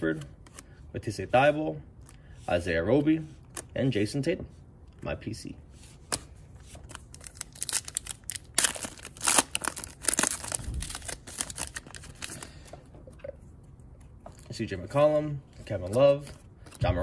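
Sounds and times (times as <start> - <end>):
foil wrapper tearing and crinkling: 7.0 - 12.3.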